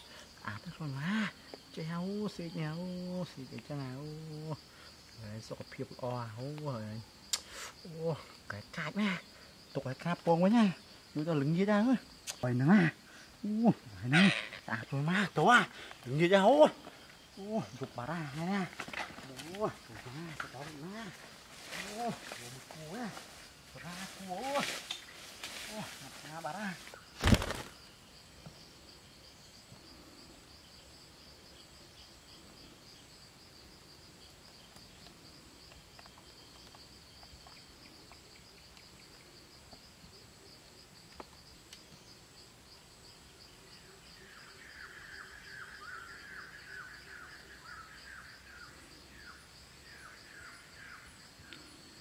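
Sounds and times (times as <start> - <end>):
insects trilling: 0.0 - 52.0
faint bird chirps: 43.7 - 52.0.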